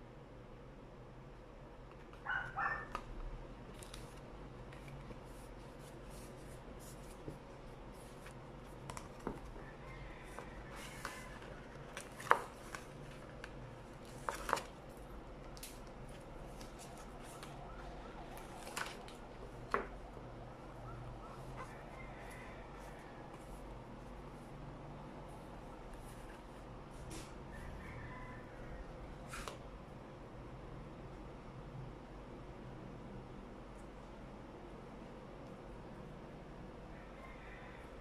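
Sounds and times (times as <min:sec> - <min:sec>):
paper rustling and creasing: 0:03.7 - 0:09.6, 0:10.2 - 0:17.6, 0:18.3 - 0:19.8.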